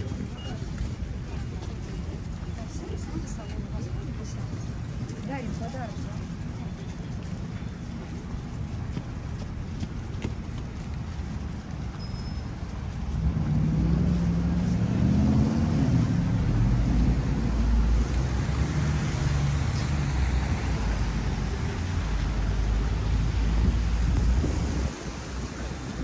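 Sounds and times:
street traffic: 0:00.0 - 0:26.0
vehicle engine passing close: 0:13.1 - 0:21.6.

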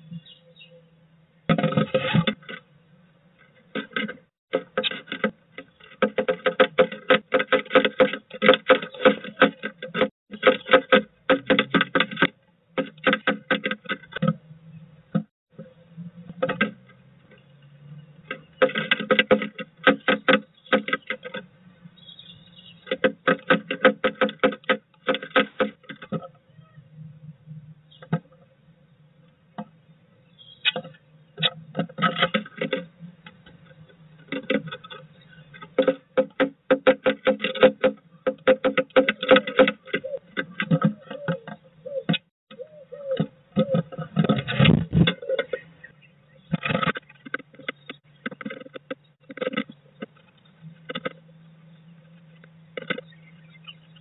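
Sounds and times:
bird pecking wood: 0:03.5 - 0:14.4, 0:18.1 - 0:21.5, 0:22.8 - 0:26.3, 0:30.6 - 0:45.6, 0:46.5 - 0:51.2.

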